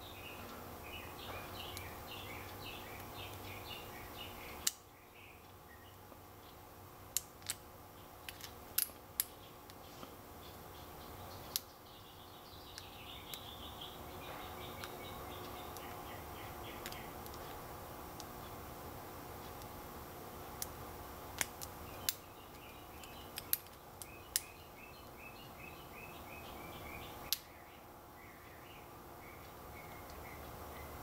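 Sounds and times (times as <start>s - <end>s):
faint chirping: 0.0s - 6.8s, 9.2s - 17.6s, 21.8s - 31.0s
lock pick metallic clicks: 7.1s - 7.6s, 8.2s - 9.8s, 21.4s - 24.5s.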